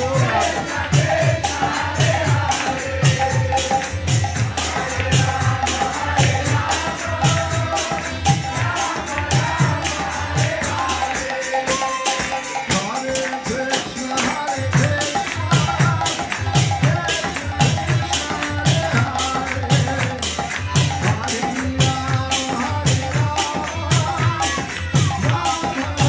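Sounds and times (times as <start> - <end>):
chanting voices: 0.0 - 26.0
hand drums beating: 0.0 - 26.0
harmonium: 0.0 - 26.0
jingling hand cymbals: 0.0 - 26.0.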